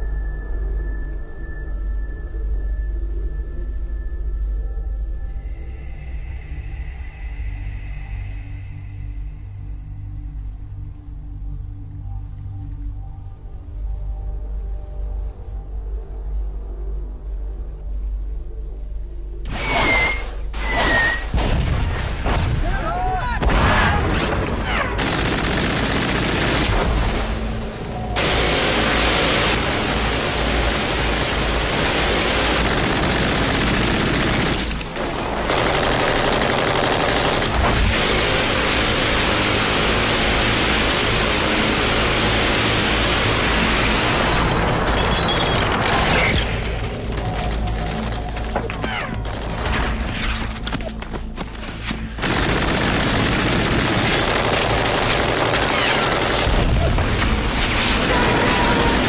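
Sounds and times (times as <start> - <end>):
machine gun automatic fire: 24.8 - 26.9, 28.2 - 48.1, 52.1 - 59.0.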